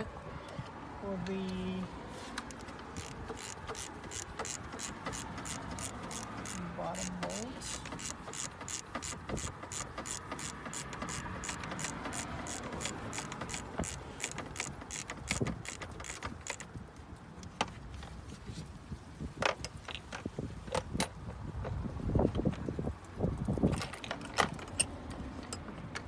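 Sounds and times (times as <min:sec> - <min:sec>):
hand ratchet clicking: 0:02.4 - 0:16.7.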